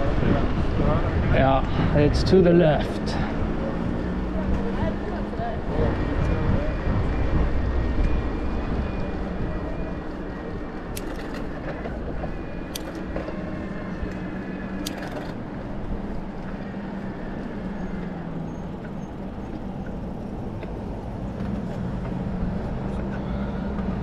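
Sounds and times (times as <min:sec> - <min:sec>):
wind and road noise: 0:00.0 - 0:24.0
sharp clicks: 0:12.7 - 0:13.2, 0:14.8 - 0:15.4.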